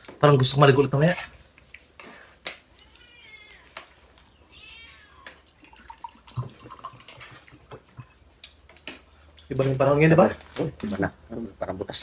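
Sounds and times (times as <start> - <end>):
cat meowing: 2.7 - 5.8.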